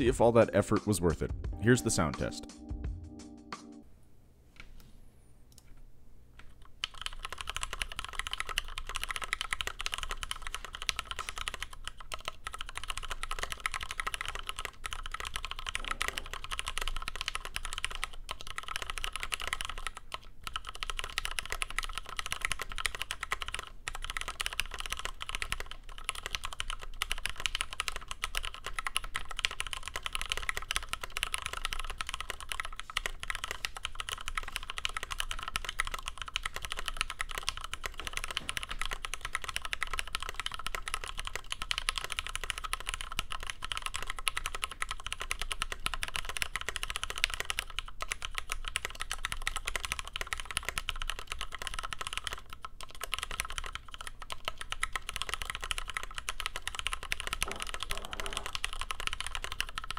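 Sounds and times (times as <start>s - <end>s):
mechanical keyboard typing: 6.4s - 59.9s.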